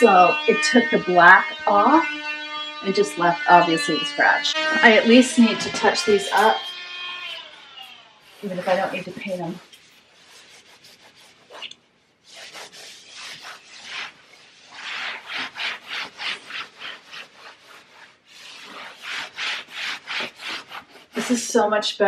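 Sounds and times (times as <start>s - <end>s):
cloth rubbing on a wall: 0.0s - 21.7s.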